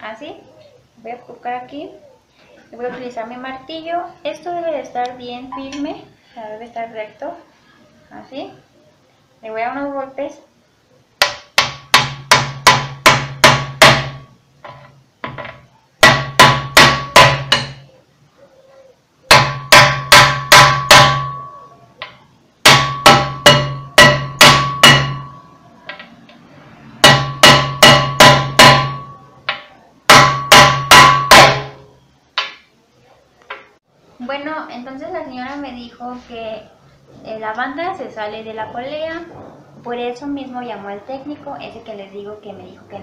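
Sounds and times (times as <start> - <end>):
hammer blows on wooden block: 11.2 - 14.3, 16.0 - 17.9, 19.3 - 26.1, 27.0 - 31.8
metallic ring of sheet metal: 19.4 - 25.7, 27.0 - 29.4.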